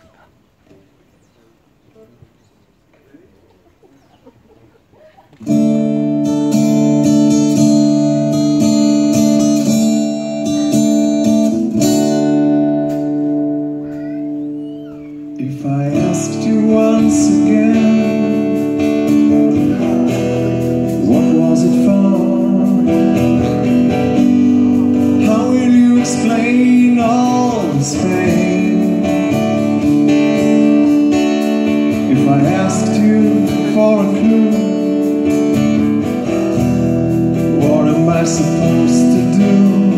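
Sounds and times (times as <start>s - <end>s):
acoustic guitar chords: 5.4s - 39.9s
live band playing: 5.4s - 39.9s
person singing: 13.8s - 31.1s, 31.9s - 35.3s, 37.4s - 39.9s.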